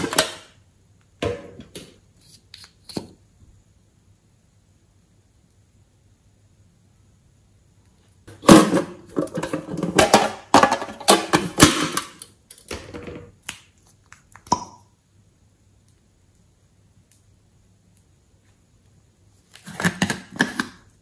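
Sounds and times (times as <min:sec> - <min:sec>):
metal tin lid clattering: 0:00.0 - 0:00.5, 0:08.3 - 0:12.2.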